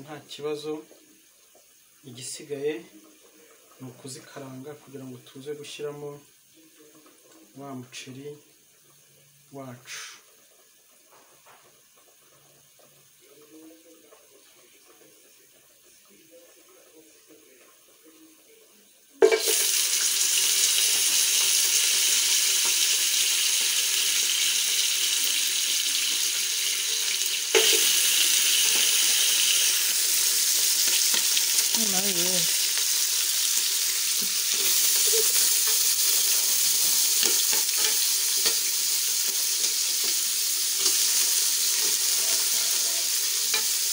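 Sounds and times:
meat sizzling in hot oil: 0:07.6 - 0:12.8, 0:19.2 - 0:43.9.

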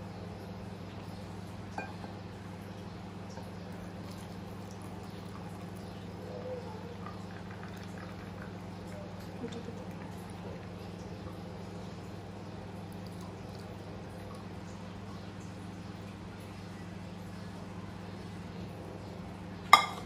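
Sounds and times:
low steady hum: 0:00.0 - 0:20.0
milk pouring over ice: 0:06.9 - 0:14.6.

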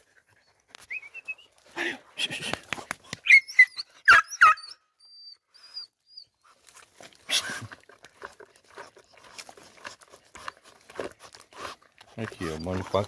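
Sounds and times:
dogs whining: 0:03.2 - 0:06.4, 0:12.3 - 0:13.0
dogs scratching at wood and leaves: 0:06.5 - 0:13.0.

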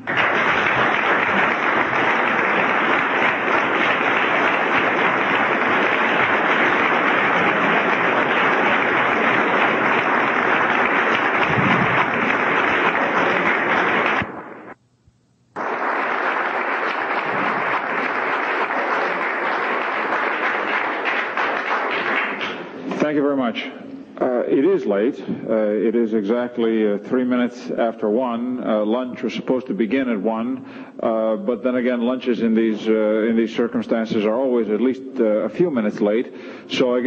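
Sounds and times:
audience applauding: 0:00.0 - 0:14.8, 0:15.6 - 0:23.0.

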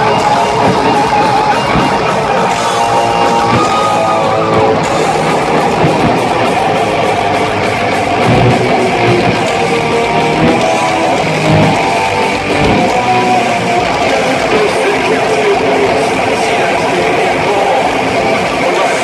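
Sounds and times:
thrash metal band playing live: 0:00.0 - 0:19.0.

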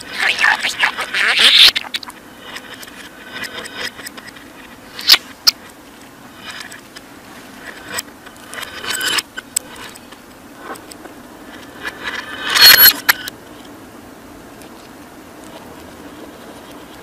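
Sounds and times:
budgerigar chattering: 0:00.1 - 0:02.2.

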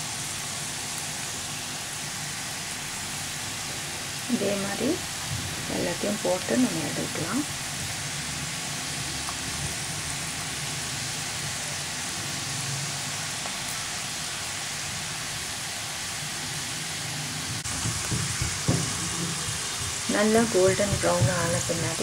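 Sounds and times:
peanuts sizzling in hot oil: 0:00.0 - 0:22.0
soft knocks: 0:17.6 - 0:19.7.

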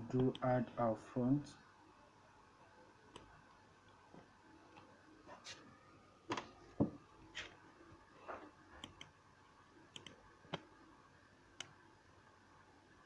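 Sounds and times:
computer mouse clicks: 0:08.8 - 0:09.2, 0:09.9 - 0:10.7, 0:11.6 - 0:11.8.

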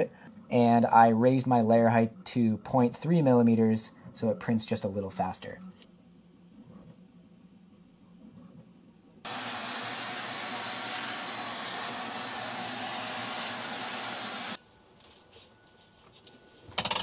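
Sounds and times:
vacuum hose sucking sawdust: 0:09.3 - 0:14.6.

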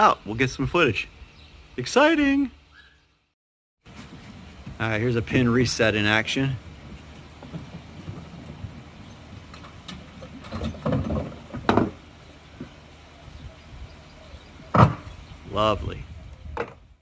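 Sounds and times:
low steady rumble: 0:03.9 - 0:17.0.

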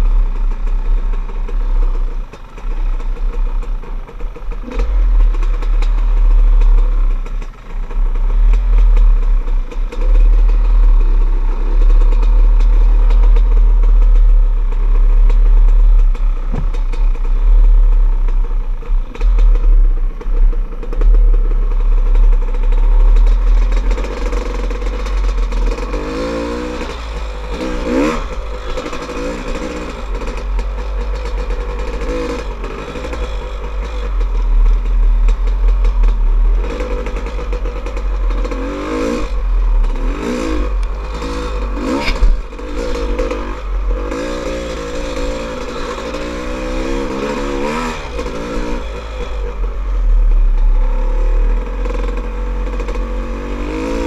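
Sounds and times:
dirt bike engine revving: 0:04.4 - 0:06.7, 0:10.0 - 0:50.1, 0:50.8 - 0:54.0
sharp knocks and rattles: 0:11.8 - 0:47.0.

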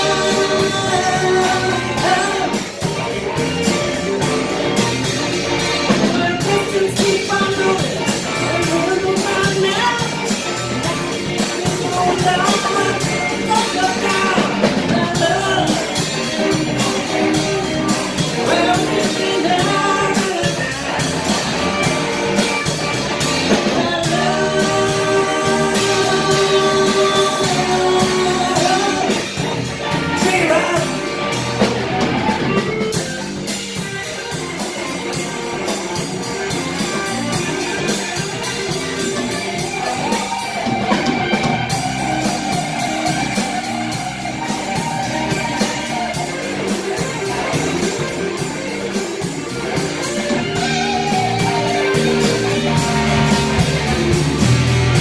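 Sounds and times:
man singing: 0:00.0 - 0:02.9, 0:05.9 - 0:21.4, 0:23.2 - 0:31.4
rock band playing: 0:00.0 - 0:55.0.

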